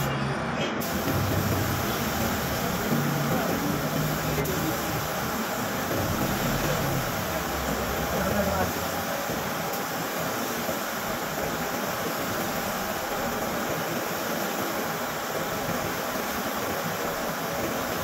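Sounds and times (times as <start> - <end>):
spray gun air hiss: 0.8 - 18.0.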